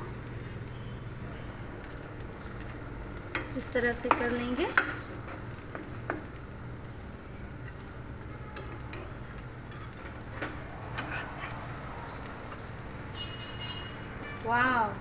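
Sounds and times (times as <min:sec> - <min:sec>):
spatula scraping frying pan: 0:09.7 - 0:11.8.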